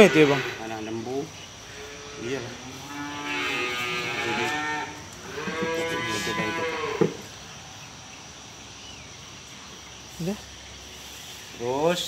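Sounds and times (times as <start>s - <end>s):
cow mooing: 0.0s - 0.8s, 1.7s - 7.1s.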